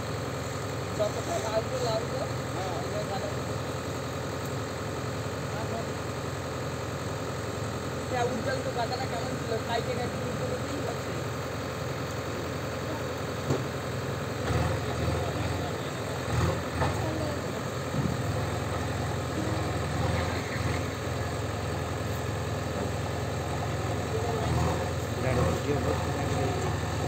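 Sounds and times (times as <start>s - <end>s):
diesel engine running: 0.0s - 27.0s.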